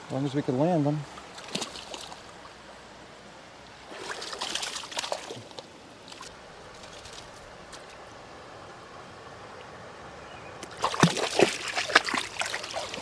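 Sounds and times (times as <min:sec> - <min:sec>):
creek running: 0:00.0 - 0:13.0
fish splashing in water: 0:01.3 - 0:02.3, 0:03.9 - 0:07.4, 0:10.6 - 0:13.0.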